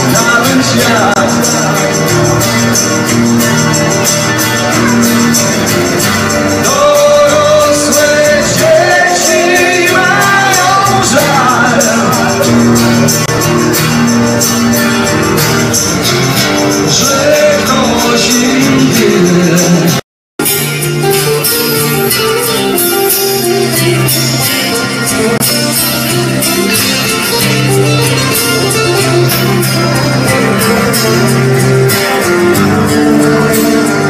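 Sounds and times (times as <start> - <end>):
man singing: 0.0 - 2.8, 6.3 - 13.0, 16.8 - 20.0
acoustic guitars: 0.0 - 34.0
hand percussion: 0.0 - 34.0.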